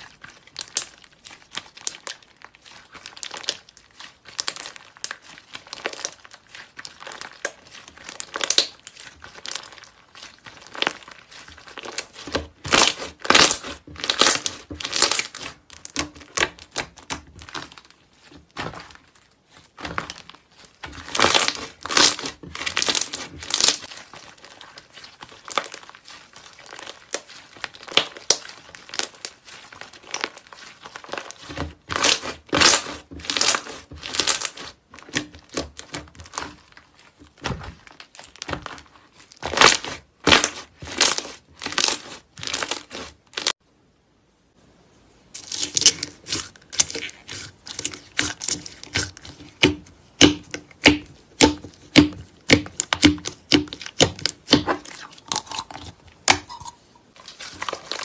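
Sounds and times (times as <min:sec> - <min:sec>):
slime crackling and popping: 0:00.0 - 0:43.6, 0:45.3 - 0:58.0.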